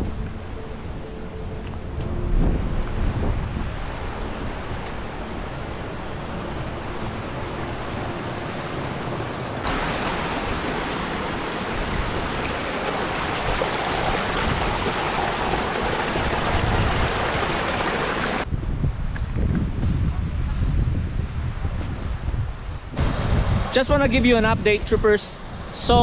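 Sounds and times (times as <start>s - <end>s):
wind buffeting microphone: 0.0s - 26.0s
stream running over rocks: 3.6s - 18.5s.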